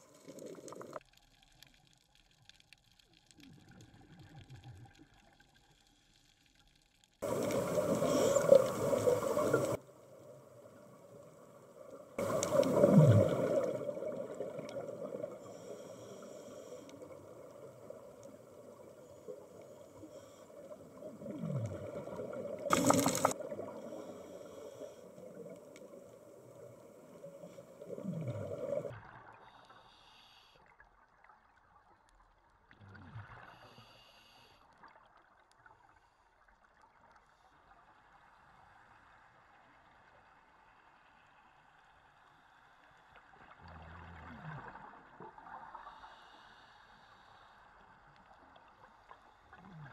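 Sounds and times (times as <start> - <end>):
exhaled bubbles from regulator: 7.2 - 9.8, 12.2 - 24.6, 27.2 - 29.0
steady underwater drone: 7.2 - 30.8, 33.1 - 35.0, 35.6 - 49.9.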